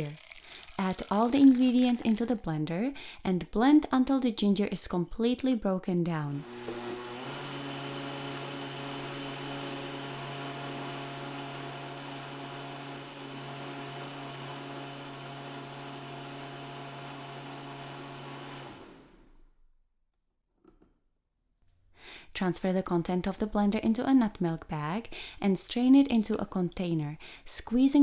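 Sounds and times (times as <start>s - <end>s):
blender motor running: 6.4s - 19.3s.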